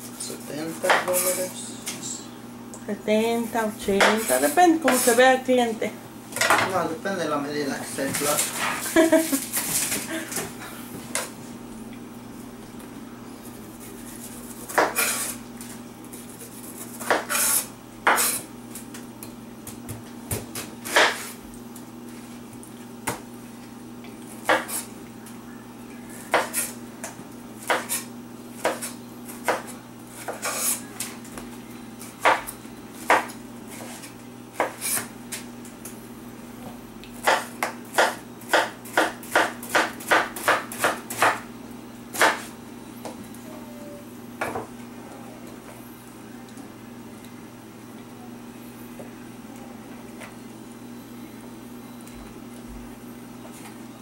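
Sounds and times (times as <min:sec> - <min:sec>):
knife slicing pineapple: 0:16.4 - 0:18.5.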